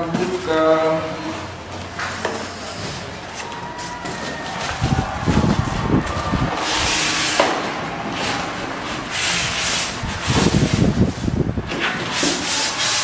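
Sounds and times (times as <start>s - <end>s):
styrofoam rubbing on cardboard: 9.1s - 11.3s, 12.1s - 13.0s.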